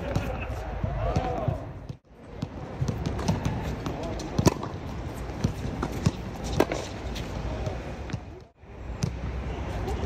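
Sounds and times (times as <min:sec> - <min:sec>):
ball bouncing: 0:01.1 - 0:06.9, 0:07.6 - 0:09.3
racket hitting tennis ball: 0:02.4 - 0:07.4.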